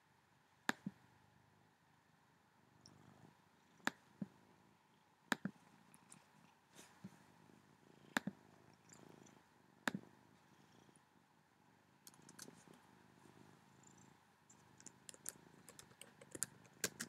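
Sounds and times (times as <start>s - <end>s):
cat purring: 2.7s - 11.2s, 12.0s - 17.0s
sharp computer clicks: 14.8s - 17.0s.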